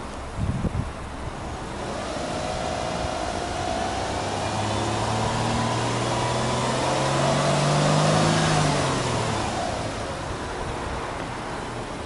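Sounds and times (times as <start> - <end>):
car exhaust engine revving: 1.3 - 10.8.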